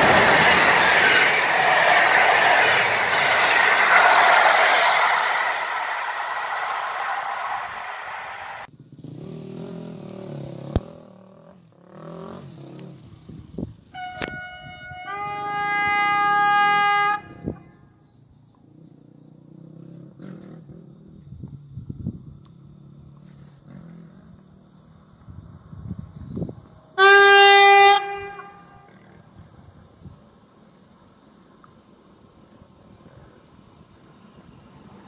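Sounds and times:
passing train rolling noise: 0.0s - 8.7s, 13.2s - 17.6s, 23.5s - 35.0s
loud train horn: 13.9s - 17.7s, 27.0s - 29.2s.

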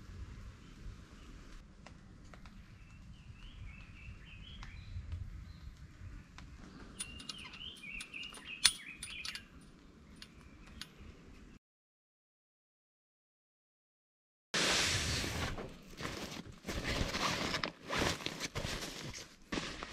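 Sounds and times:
songbirds chirping: 0.5s - 11.6s.

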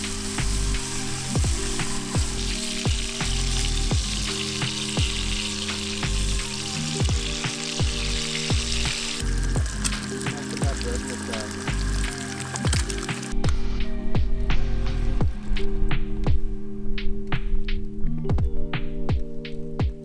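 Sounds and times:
meat sizzling in a frying pan: 0.0s - 13.4s
background music with beat: 0.0s - 20.0s.

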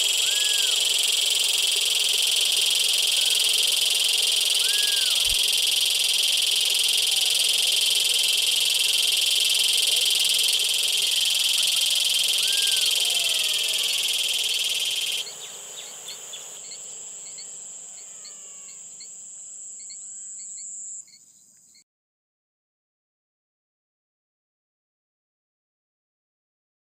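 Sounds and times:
frog calls: 0.0s - 21.2s
dense insect buzzing: 0.0s - 21.8s
high insect trill with chirps: 0.0s - 21.8s.

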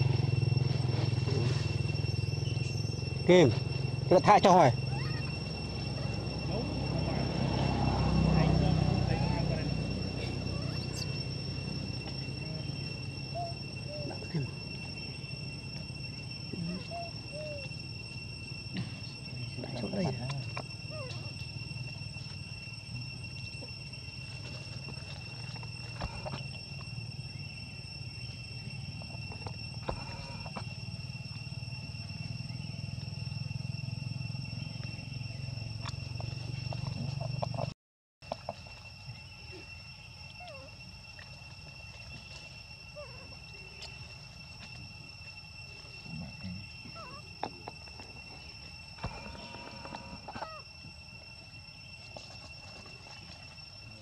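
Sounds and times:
insects chirring: 0.0s - 54.0s
short chirping calls: 10.1s - 11.3s.

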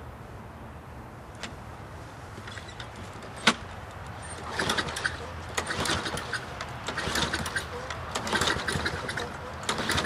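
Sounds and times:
recoil starter cranking engine: 4.2s - 10.0s.

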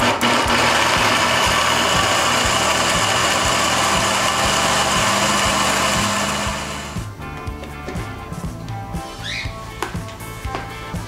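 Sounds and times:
blender motor whirring: 0.0s - 7.1s
background music with beat: 0.3s - 11.0s.

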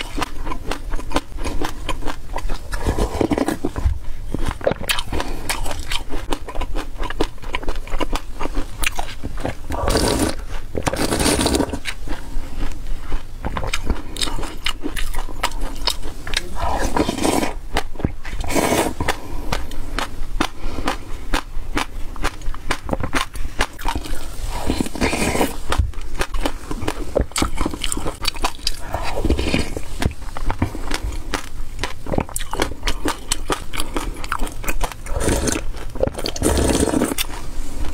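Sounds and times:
chewing crunches: 0.0s - 37.9s
slurping sips: 9.7s - 11.9s, 16.3s - 17.6s, 18.3s - 19.3s, 24.0s - 25.6s, 35.0s - 37.3s
plastic spoon scraping tub: 9.8s - 11.8s, 16.6s - 17.6s, 18.3s - 19.2s, 35.1s - 37.4s.

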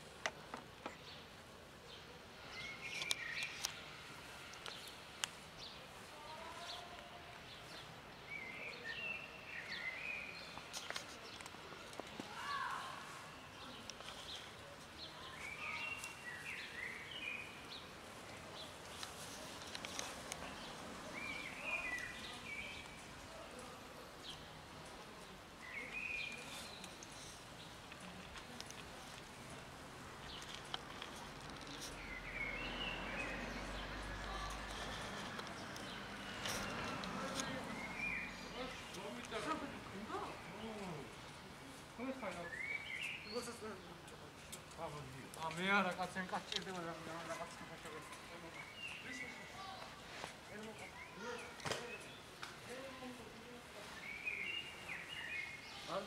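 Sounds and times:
birds chirping faintly: 0.0s - 56.0s
low outdoor hiss: 0.0s - 56.0s.

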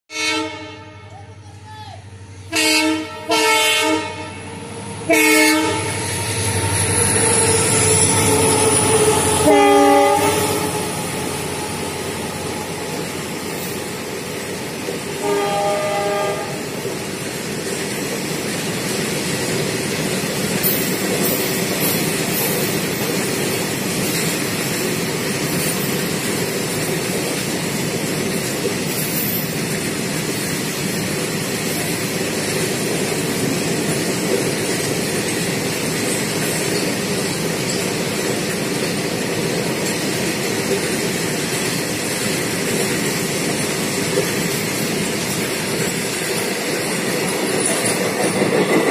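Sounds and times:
train horn blast: 0.1s - 1.2s, 2.3s - 11.7s, 15.2s - 16.8s
freight train rumbling past: 0.1s - 48.9s
wheels clacking over rail joints: 5.9s - 48.9s.

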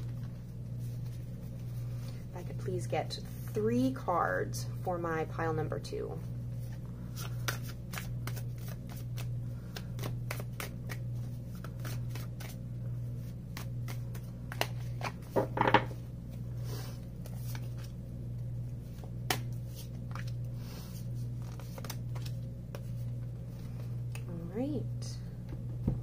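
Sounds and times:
cards being shuffled: 0.0s - 2.2s, 6.5s - 18.0s, 18.8s - 24.2s.

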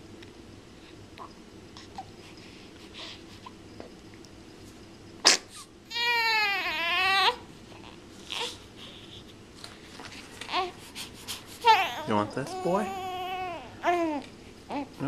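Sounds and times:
baby crying: 5.9s - 9.1s, 10.5s - 10.8s, 11.6s - 15.0s.

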